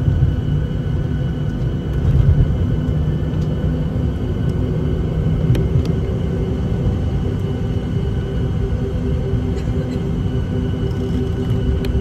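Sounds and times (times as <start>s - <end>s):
jet engines rumbling: 0.0s - 12.0s.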